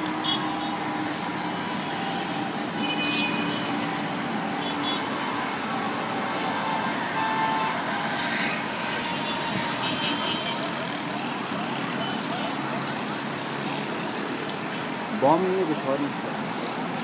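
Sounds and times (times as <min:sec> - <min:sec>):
car horns: 0:00.0 - 0:10.9
city street traffic noise: 0:00.0 - 0:17.0.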